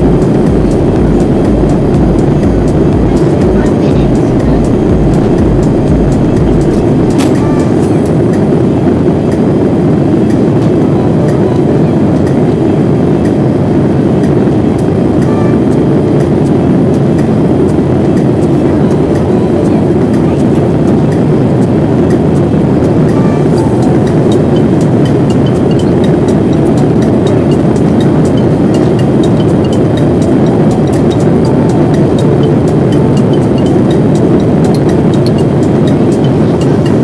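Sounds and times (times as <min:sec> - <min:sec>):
airplane cabin noise: 0:00.0 - 0:37.0
jet engines: 0:00.0 - 0:37.0
rushing airflow: 0:00.0 - 0:37.0.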